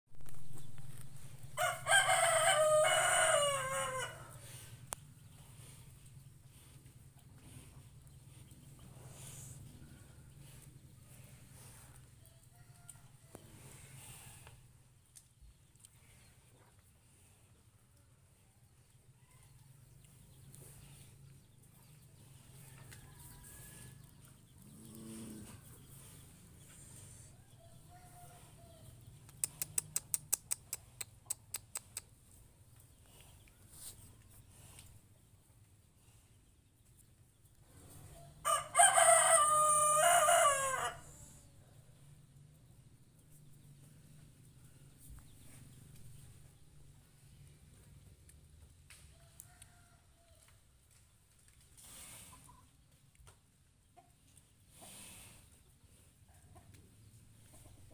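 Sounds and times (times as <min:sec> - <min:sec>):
rooster crowing: 0:01.6 - 0:04.4, 0:38.4 - 0:41.2.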